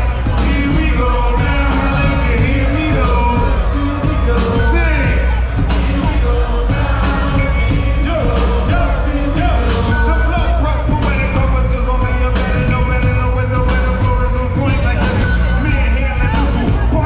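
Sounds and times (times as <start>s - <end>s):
live rock band: 0.0s - 17.0s
person singing into microphone: 0.0s - 17.0s.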